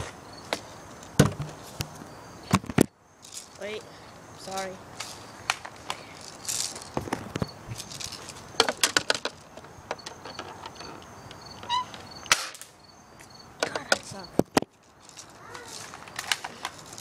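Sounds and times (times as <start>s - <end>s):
handling clicks and rattles: 5.0s - 12.6s, 13.6s - 17.0s
short squeak: 10.0s - 12.2s.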